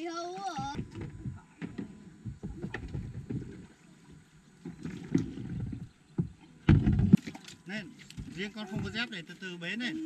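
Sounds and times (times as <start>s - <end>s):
water sloshing: 0.0s - 10.0s
boat bumps and knocks: 0.4s - 9.2s.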